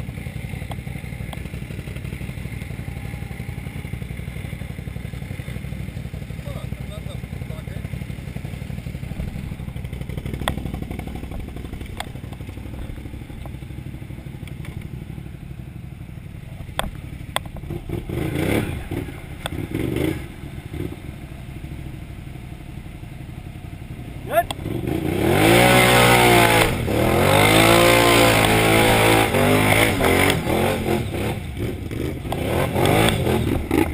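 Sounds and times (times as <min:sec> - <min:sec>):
engine idling: 0:00.0 - 0:25.5.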